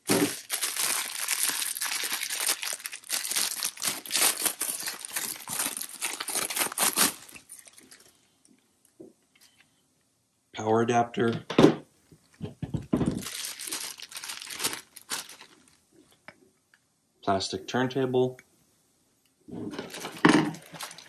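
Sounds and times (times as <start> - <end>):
plastic bag crinkling: 0.0 - 8.2, 12.2 - 15.8, 19.7 - 21.0.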